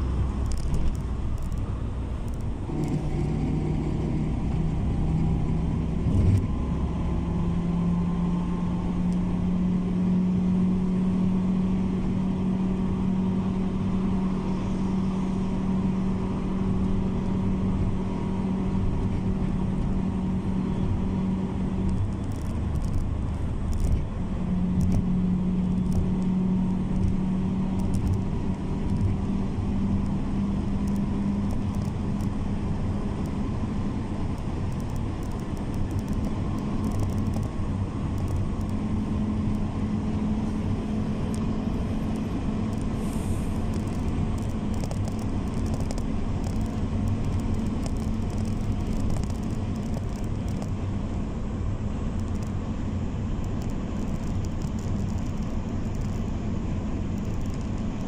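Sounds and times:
car engine and tyres droning: 0.0s - 58.0s.

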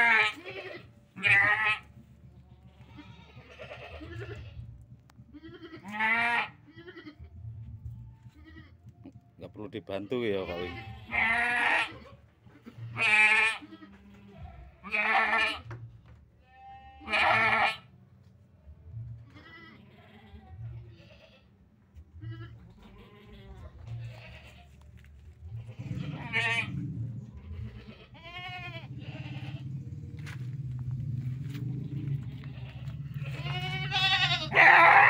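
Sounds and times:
goats bleating: 0.0s - 7.4s, 8.3s - 8.8s, 10.0s - 15.8s, 16.4s - 17.9s, 19.2s - 21.5s, 22.1s - 35.0s
low steady hum: 24.6s - 34.6s.

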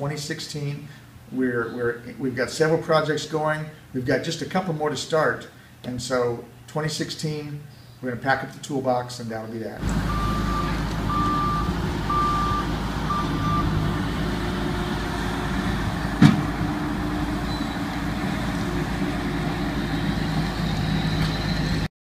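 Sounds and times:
back-up alarm beeping: 9.8s - 14.2s, 17.4s - 18.1s
construction machinery engine drone: 9.8s - 21.9s
sharp loud bang: 16.2s - 16.6s.

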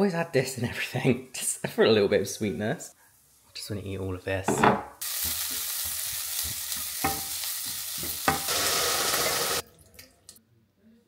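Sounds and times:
vegetables sizzling in a frying pan: 5.0s - 9.6s.

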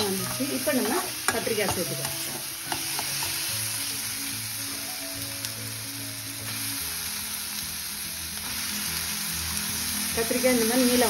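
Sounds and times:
masala sizzling in hot oil: 0.0s - 11.0s
soft background music: 0.0s - 11.0s
spoon stirring in pan: 0.2s - 3.4s.

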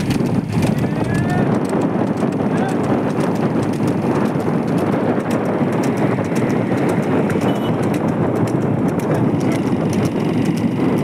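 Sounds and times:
hooves clip-clopping on asphalt: 0.0s - 11.0s
road noise rumble: 0.0s - 11.0s.

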